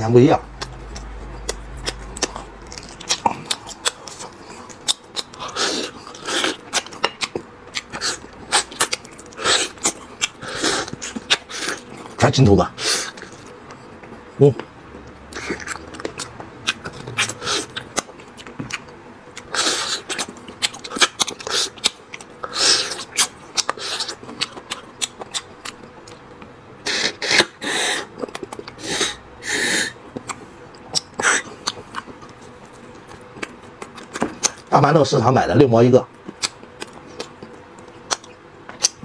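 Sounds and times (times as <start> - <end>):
chewing clicks: 0.6 - 12.2, 13.2 - 22.3, 30.1 - 34.6, 36.2 - 39.0.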